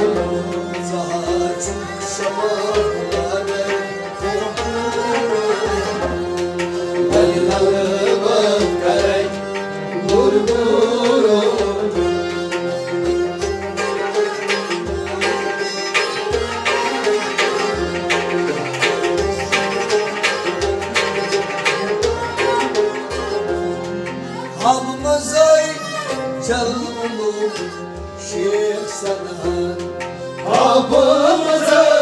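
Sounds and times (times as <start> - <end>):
man singing: 0.0 - 12.4, 24.6 - 32.0
harmonium chords: 0.0 - 32.0
plucked strings: 0.0 - 32.0.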